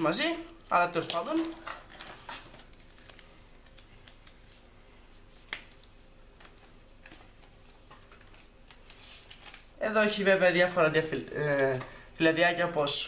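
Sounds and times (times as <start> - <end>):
paper and cardboard rustling: 1.0 - 4.7, 5.7 - 9.8.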